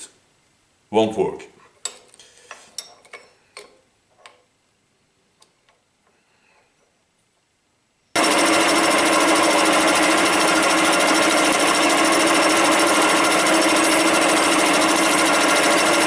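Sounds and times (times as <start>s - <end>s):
milling machine cutting steel: 8.2s - 16.0s.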